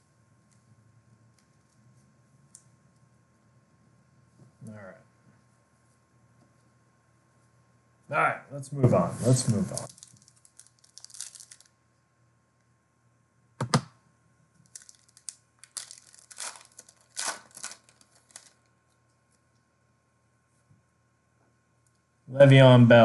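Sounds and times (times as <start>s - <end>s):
foil wrapper tearing and crinkling: 9.7s - 11.7s, 14.6s - 18.7s.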